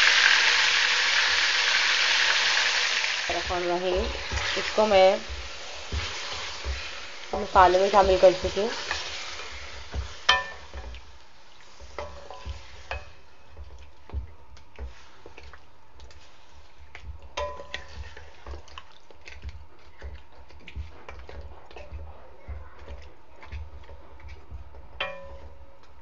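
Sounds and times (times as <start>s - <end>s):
oil sizzling: 0.0s - 26.0s
wooden spatula stirring in wok: 1.8s - 26.0s
spatula knocking against pan: 3.8s - 9.1s, 9.8s - 11.0s, 20.8s - 25.9s.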